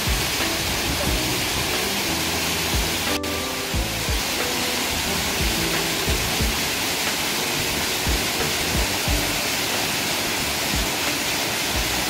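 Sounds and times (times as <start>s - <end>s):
waterfall rushing: 0.0s - 12.0s
low thumps: 5.0s - 6.8s.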